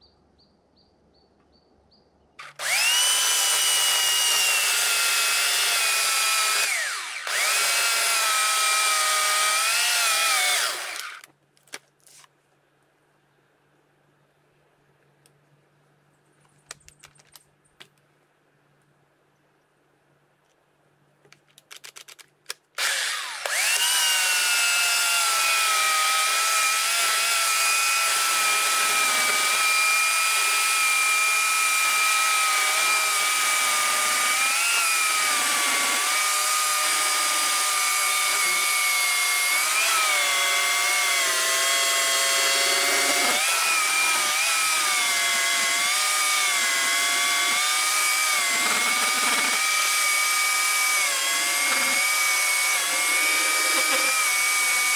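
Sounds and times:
electric chainsaw cutting log: 2.4s - 11.3s, 22.8s - 54.9s.

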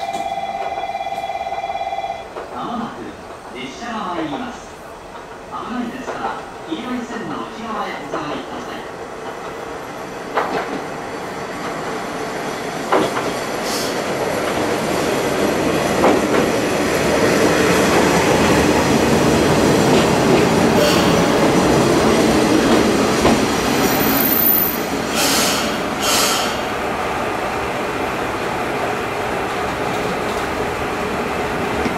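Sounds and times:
railcar engine and wheels on rails: 0.0s - 31.9s
clacks over rail joints: 4.2s - 6.6s, 8.1s - 11.0s, 12.7s - 23.7s, 29.4s - 30.6s
short brake hisses: 25.1s - 26.6s.

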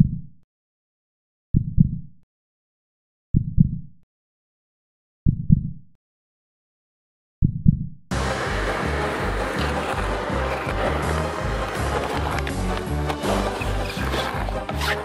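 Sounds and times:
heartbeat double thump: 1.6s - 2.0s, 3.3s - 3.8s, 5.2s - 5.8s, 7.4s - 8.0s.

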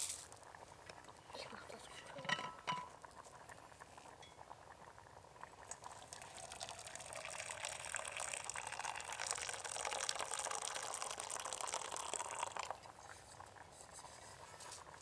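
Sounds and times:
glass jar clinking: 2.2s - 3.0s
water pouring into metal cup: 5.6s - 13.0s.

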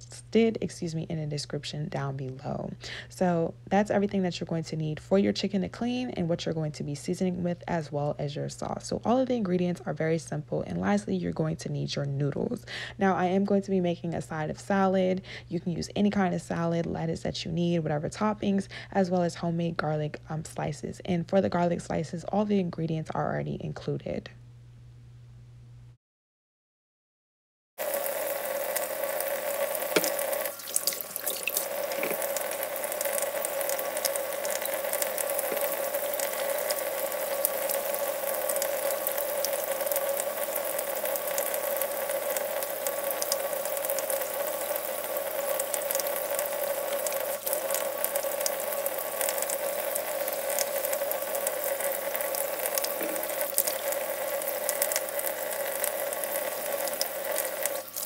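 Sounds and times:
faucet running into steel sink: 27.8s - 58.0s
hands washing under water: 27.8s - 58.0s.

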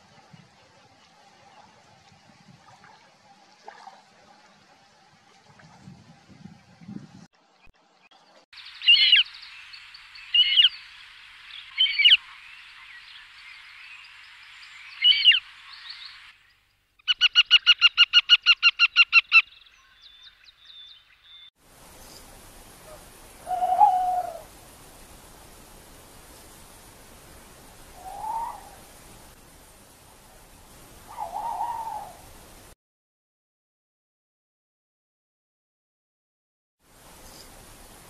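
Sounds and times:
low drawn-out animal call: 22.9s - 24.5s
sharp high falling animal calls: 23.4s - 24.5s.

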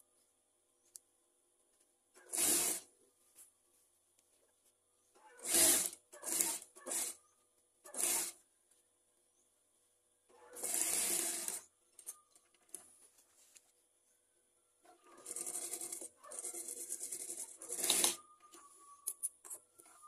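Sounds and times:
sewing machine stitching: 2.2s - 2.9s, 5.3s - 7.2s, 7.9s - 8.4s, 10.4s - 11.7s, 15.0s - 18.2s.

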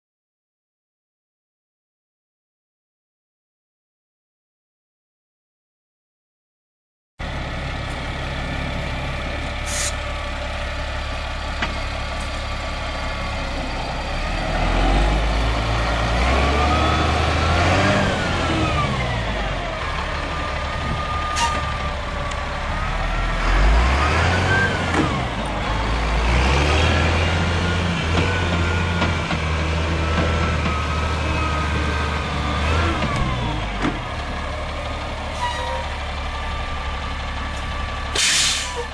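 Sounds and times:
diesel truck engine idling and revving: 7.2s - 38.9s.

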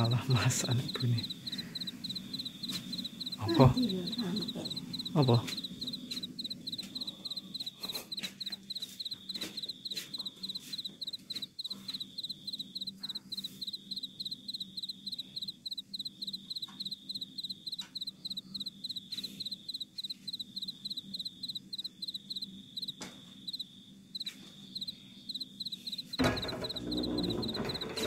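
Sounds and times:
cricket chirping: 0.0s - 28.0s.

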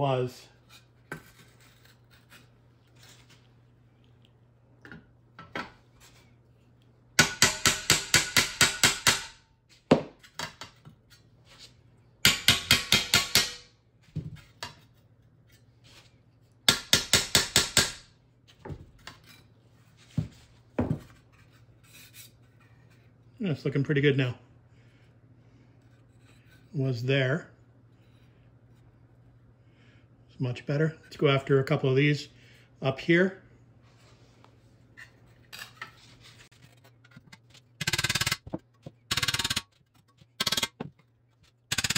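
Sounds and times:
hammer striking chisel on metal: 7.2s - 9.4s, 12.2s - 13.7s, 16.7s - 18.0s.

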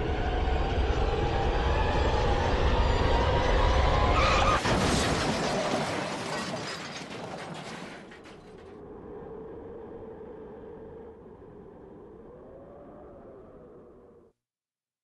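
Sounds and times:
glass shattering: 4.6s - 8.7s
crunching clattering metal: 4.6s - 8.8s.

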